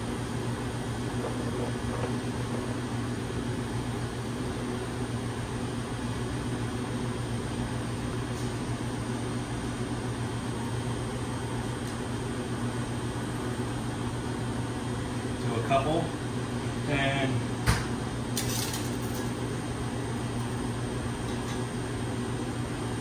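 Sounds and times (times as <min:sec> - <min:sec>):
kitchen machinery hum and hiss: 0:00.0 - 0:23.0.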